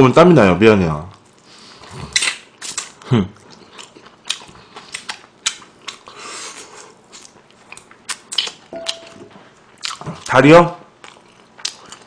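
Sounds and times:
chewing fried chicken: 0:01.1 - 0:12.0
wet mouth clicks: 0:02.1 - 0:02.9.

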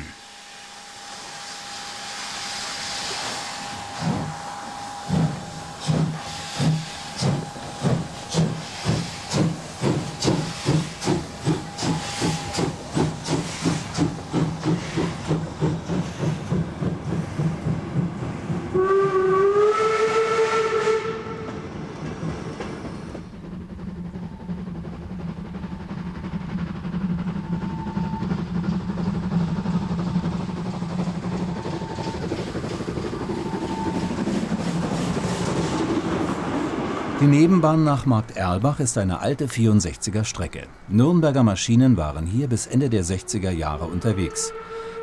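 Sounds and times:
steam hissing: 0:00.0 - 0:20.9, 0:23.0 - 0:45.0
steam locomotive exhaust beats: 0:00.0 - 0:45.0
steam whistle: 0:18.7 - 0:21.7, 0:33.3 - 0:34.2, 0:44.1 - 0:45.0.

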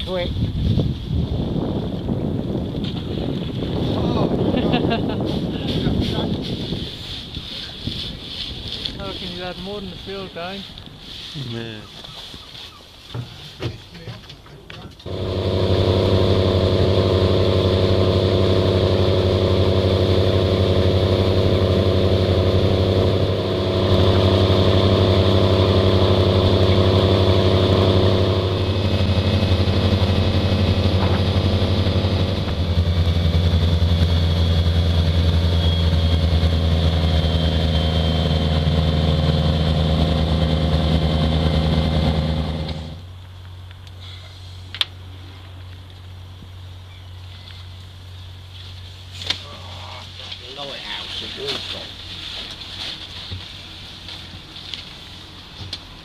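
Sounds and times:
boat engine running: 0:15.0 - 0:43.2.

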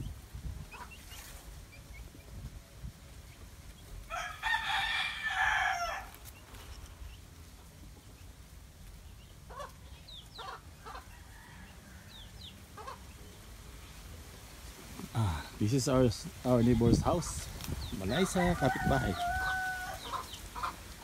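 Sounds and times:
rooster crowing: 0:04.1 - 0:06.2, 0:10.9 - 0:12.4, 0:18.1 - 0:20.3
faint short rooster calls: 0:18.6 - 0:20.2.

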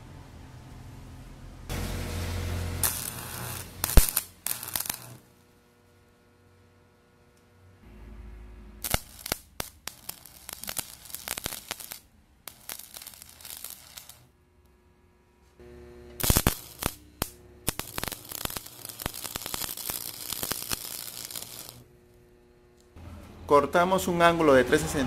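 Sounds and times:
low electrical hum: 0:00.0 - 0:25.0
welding arc crackling and hissing: 0:01.7 - 0:05.6, 0:08.8 - 0:14.3, 0:15.6 - 0:22.2.

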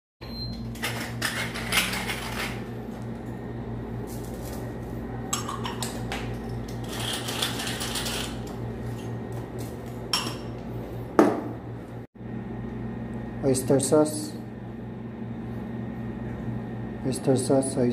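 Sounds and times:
steady low hum: 0:00.4 - 0:17.9
kitchen items clinking: 0:05.3 - 0:08.6.

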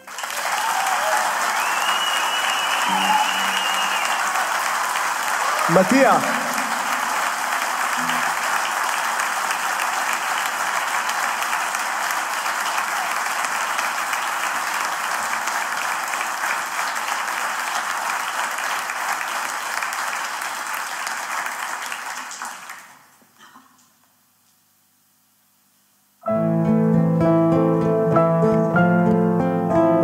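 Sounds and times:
audience applauding: 0:00.0 - 0:23.2.

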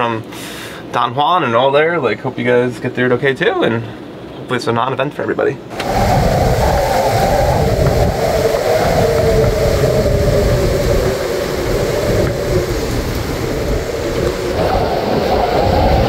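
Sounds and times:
wind buffeting microphone: 0:05.7 - 0:16.0
wind howling: 0:05.7 - 0:16.0.

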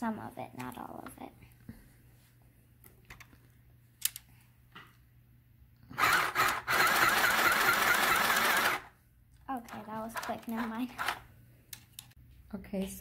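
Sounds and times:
sewing machine stitching: 0:06.0 - 0:08.9, 0:09.7 - 0:11.2.

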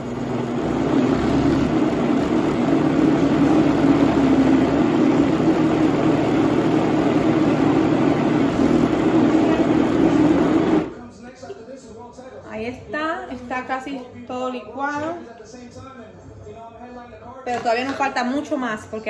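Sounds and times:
blender motor running: 0:00.0 - 0:11.0.

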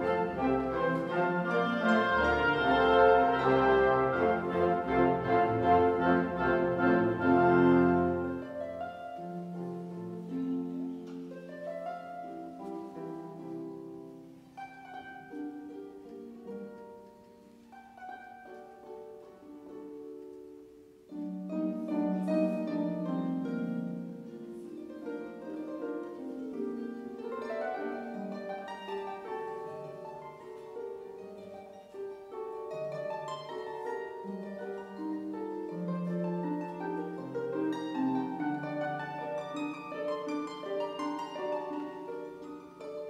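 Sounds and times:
concert band accompanying: 0:00.0 - 0:08.7
harp playing: 0:00.0 - 0:43.0.

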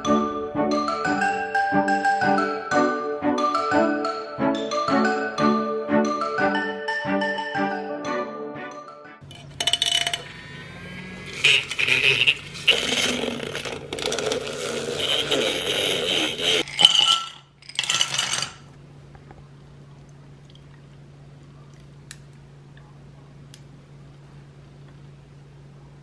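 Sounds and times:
faint low hum: 0:18.0 - 0:26.0.

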